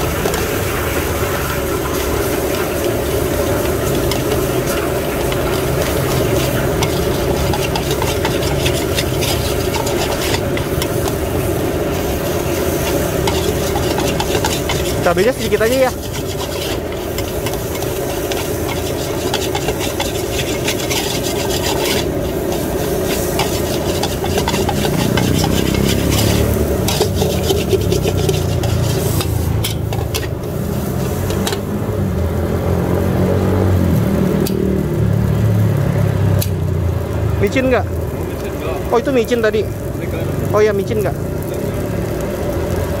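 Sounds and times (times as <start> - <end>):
metal spatula scraping a wok: 0.0 - 31.7
rice sizzling: 0.0 - 43.0.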